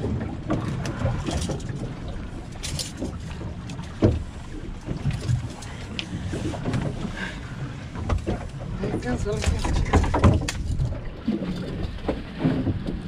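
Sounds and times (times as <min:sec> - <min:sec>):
low rumble of boat and water: 0:00.0 - 0:13.0.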